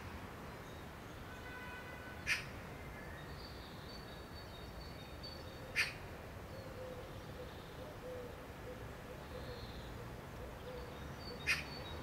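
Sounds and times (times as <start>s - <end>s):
bird chip calls: 10.7s - 11.9s.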